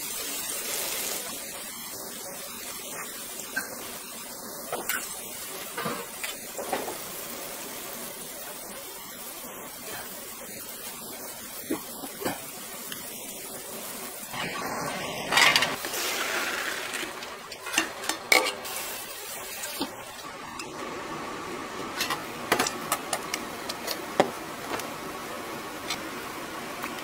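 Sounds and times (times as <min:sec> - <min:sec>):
rushing hiss: 0:09.7 - 0:17.2.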